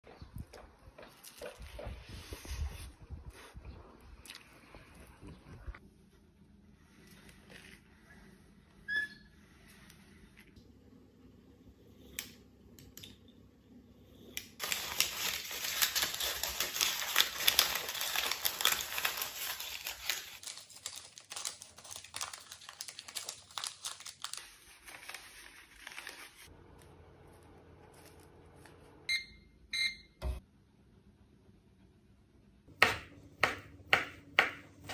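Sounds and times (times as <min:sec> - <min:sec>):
loud crinkling and rustling: 0:14.6 - 0:26.5
oven control panel beeps: 0:29.1 - 0:30.4.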